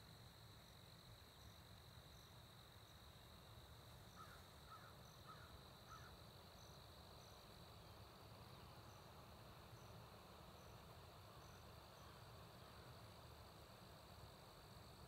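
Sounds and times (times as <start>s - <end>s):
crickets chirping: 0.0s - 15.0s
high insect trill: 0.0s - 15.0s
distant bird calling: 4.2s - 6.2s.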